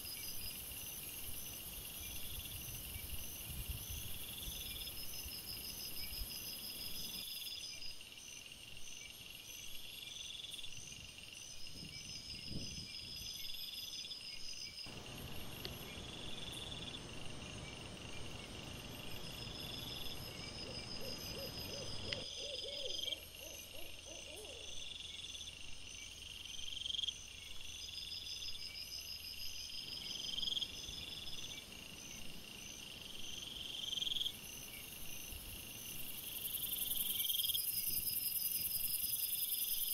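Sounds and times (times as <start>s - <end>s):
crickets chirping: 0.0s - 39.9s
wavering animal call: 20.3s - 24.8s.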